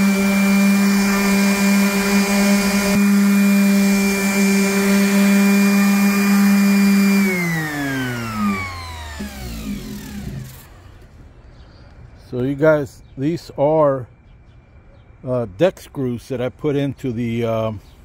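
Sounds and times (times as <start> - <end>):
power tool motor winding down: 0.0 - 11.0.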